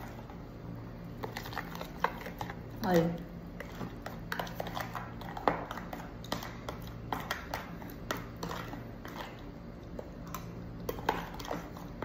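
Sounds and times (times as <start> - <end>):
spoon scraping plastic tub: 1.1 - 2.7, 3.6 - 12.0.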